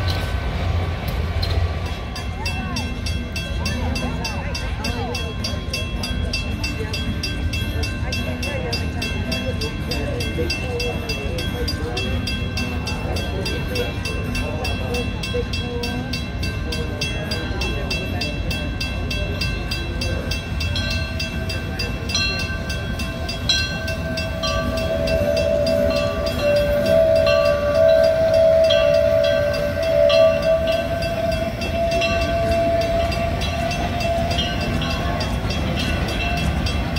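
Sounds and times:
crossing signal bell ringing: 1.4 - 36.9
steam locomotive whistle blasts: 24.2 - 35.3.

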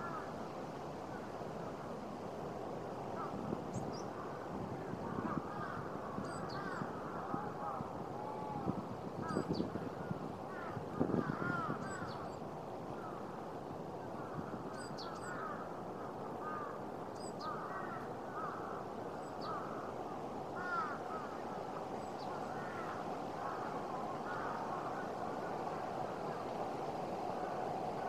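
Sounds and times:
crows cawing: 0.0 - 0.3, 5.1 - 9.4, 10.0 - 12.3, 15.1 - 15.7, 16.4 - 16.8, 17.4 - 21.6, 22.2 - 25.2.

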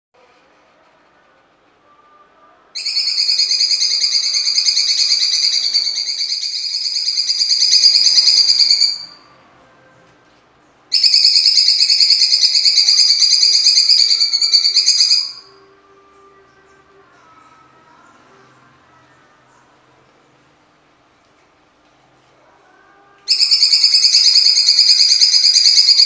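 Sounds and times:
bird singing rapid rattling notes: 23.3 - 26.0.

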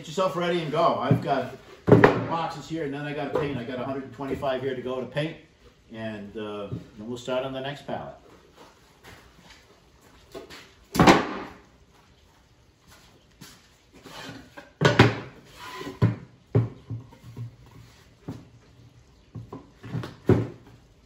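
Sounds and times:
wooden boards knocking and scraping: 1.0 - 2.5, 14.0 - 18.5, 19.3 - 20.8.

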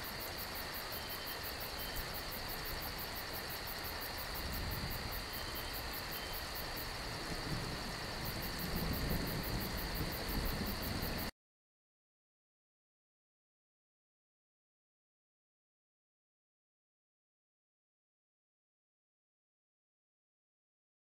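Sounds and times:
insect chorus pulsing: 0.0 - 11.3.

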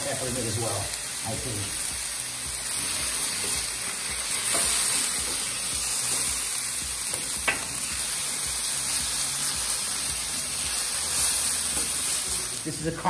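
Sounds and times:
chicken sizzling on griddle: 0.0 - 13.0
spatula scraping and tapping: 4.4 - 5.5.

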